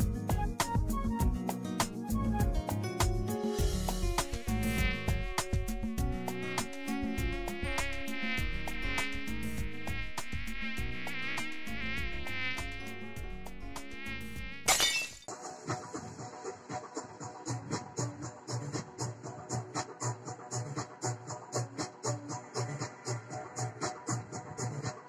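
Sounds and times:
steady clicking beat: 0:00.0 - 0:14.0
high mosquito whine: 0:03.6 - 0:14.7.

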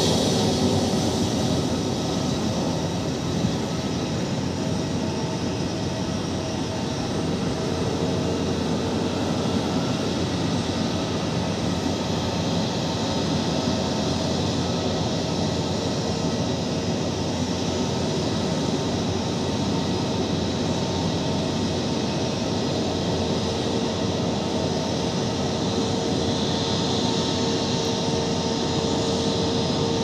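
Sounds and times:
jet engines rumbling and whining: 0:00.0 - 0:30.0.

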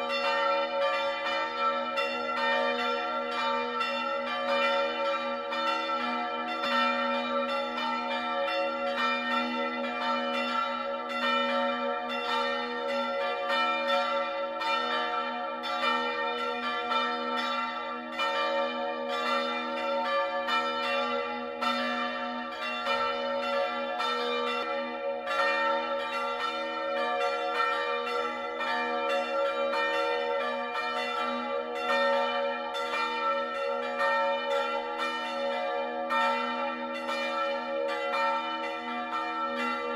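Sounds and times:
bells ringing in a peal: 0:00.0 - 0:39.9.

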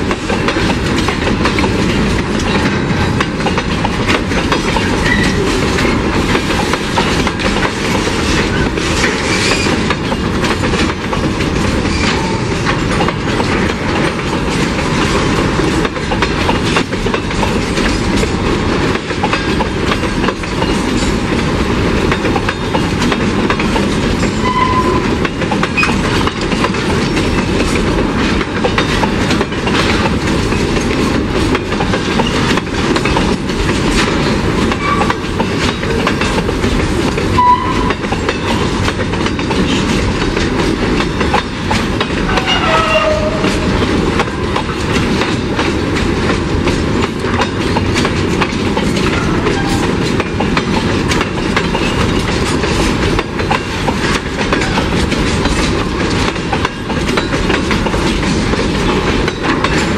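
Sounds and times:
train wheels clattering over rail joints: 0:00.0 - 0:59.9.

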